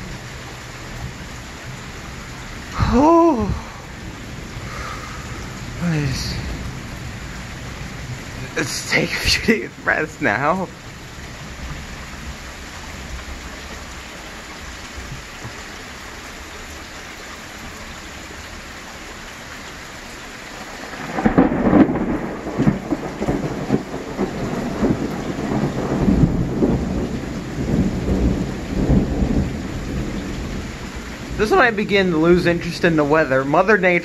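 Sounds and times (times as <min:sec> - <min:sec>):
thunder clap and rumbles: 0:00.0 - 0:13.9, 0:20.6 - 0:32.5
rain falling on pavement: 0:00.0 - 0:34.0.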